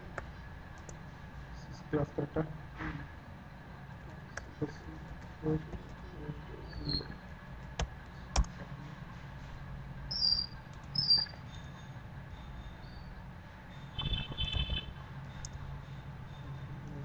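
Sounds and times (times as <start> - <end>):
low steady hum: 0.0 - 17.0
keyboard clicks: 6.8 - 8.6.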